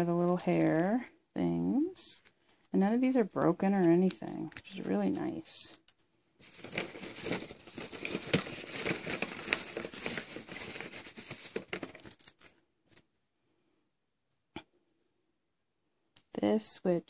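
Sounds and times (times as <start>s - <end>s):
plastic bag rustling and crinkling: 0.0s - 1.0s, 6.4s - 12.6s.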